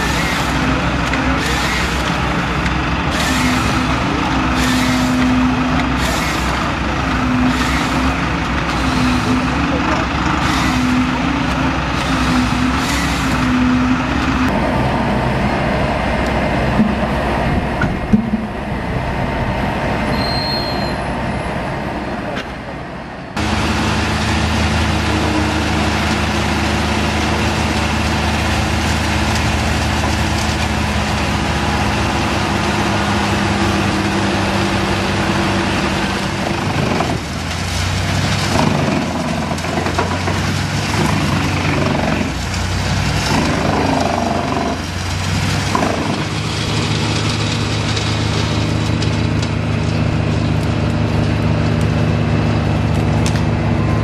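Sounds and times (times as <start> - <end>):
diesel machinery engine drone: 0.0 - 54.0.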